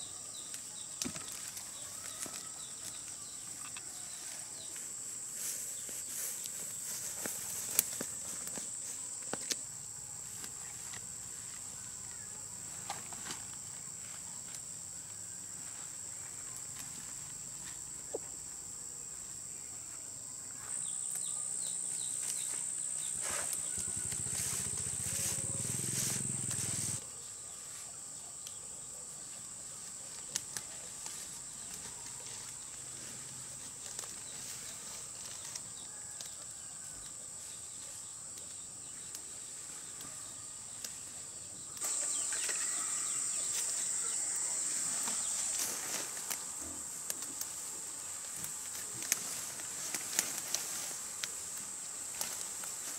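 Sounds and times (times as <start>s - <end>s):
insects droning: 0.0s - 52.9s
faint clicks and rustles: 45.3s - 52.9s.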